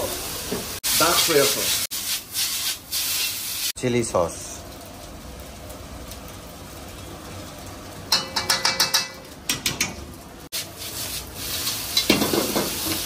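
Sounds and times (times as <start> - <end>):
noodles sizzling in a wok: 0.0 - 8.6, 9.2 - 13.0
metal ladle clanking on pot: 8.1 - 10.0.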